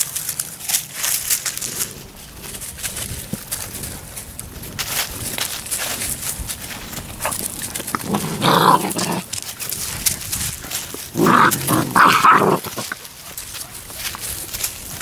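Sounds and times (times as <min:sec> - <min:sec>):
puppies vocalising: 0:11.1 - 0:13.1.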